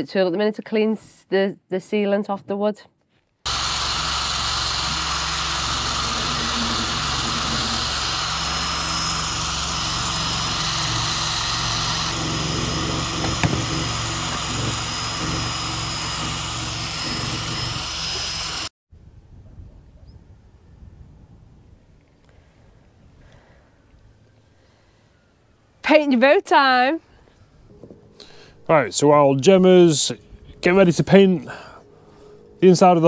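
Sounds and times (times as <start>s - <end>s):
handheld power tool sanding: 3.5s - 18.7s.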